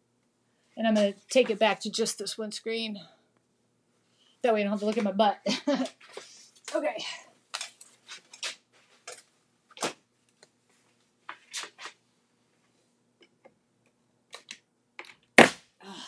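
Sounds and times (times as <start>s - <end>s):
pin nailer snap: 15.4s - 15.6s.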